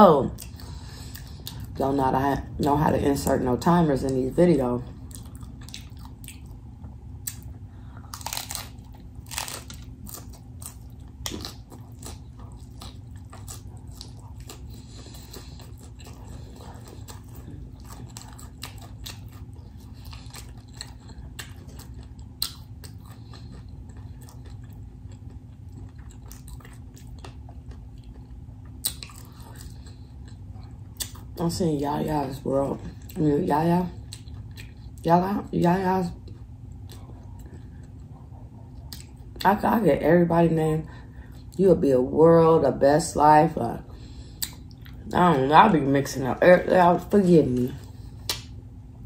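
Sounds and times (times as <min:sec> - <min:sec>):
steady low hum: 0:00.0 - 0:49.0
crunching taco shells: 0:05.0 - 0:31.6.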